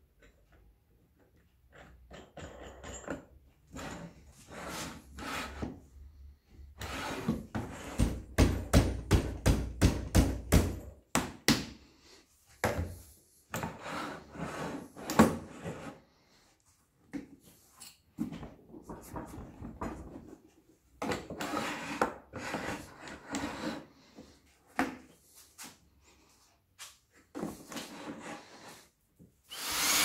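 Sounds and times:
wood scraping on wood: 0:03.7 - 0:05.8, 0:21.2 - 0:24.4, 0:27.3 - 0:28.9.

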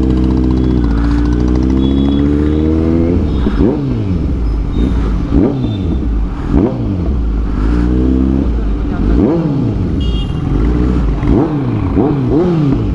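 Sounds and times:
motorcycle throttle blips: 0:00.0 - 0:06.7
motorcycle engine revving: 0:00.0 - 0:12.9.

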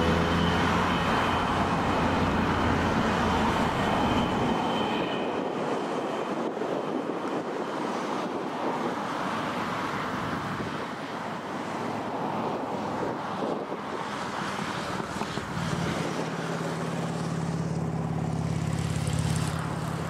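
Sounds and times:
jet engines roaring: 0:00.0 - 0:20.0
thin high whine: 0:00.2 - 0:05.6.

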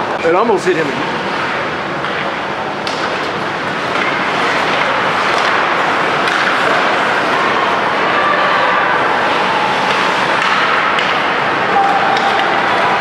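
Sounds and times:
arena noise: 0:00.0 - 0:13.0
stick and puck clacks: 0:01.4 - 0:08.1, 0:09.7 - 0:13.0.

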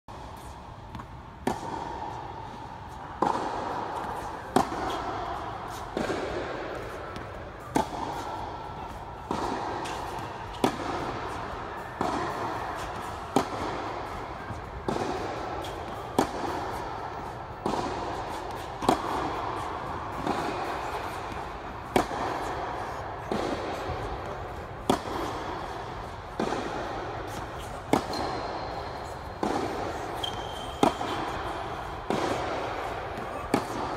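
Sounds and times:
racket hitting tennis ball: 0:00.1 - 0:33.9.

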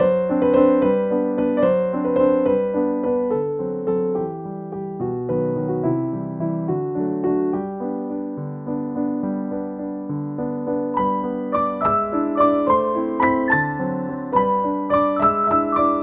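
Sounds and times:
gentle piano music: 0:00.0 - 0:16.0.

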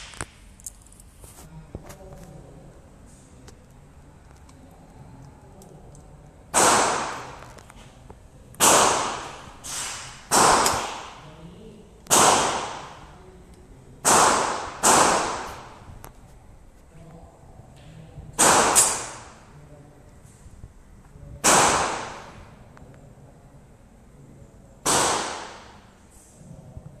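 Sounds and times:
pistol shots echoing: 0:06.5 - 0:07.4, 0:08.6 - 0:09.4, 0:10.3 - 0:11.2, 0:12.1 - 0:13.0, 0:14.0 - 0:15.8, 0:18.4 - 0:19.3, 0:21.4 - 0:22.3, 0:24.8 - 0:25.8.

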